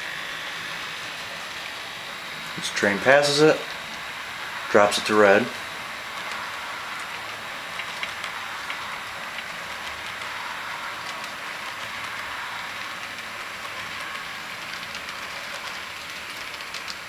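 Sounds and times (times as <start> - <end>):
model train rolling: 0.0 - 17.0
faint clicks: 11.0 - 17.0.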